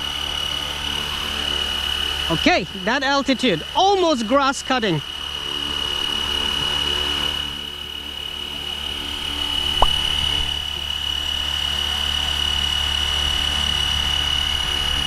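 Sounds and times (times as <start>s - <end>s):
rc helicopter hovering: 0.0s - 15.0s
short sharp blip: 9.8s - 10.1s.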